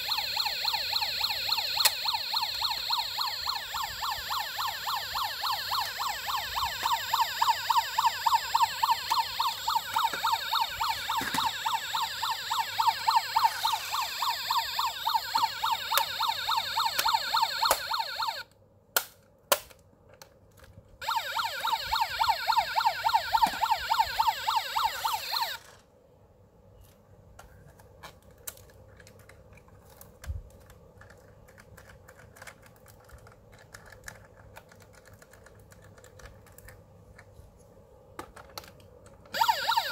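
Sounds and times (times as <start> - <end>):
toy electronic siren wailing: 0.0 - 18.5, 21.0 - 25.7, 39.3 - 39.9
plastic toy being handled: 7.8 - 12.3, 19.1 - 21.0, 26.8 - 39.4.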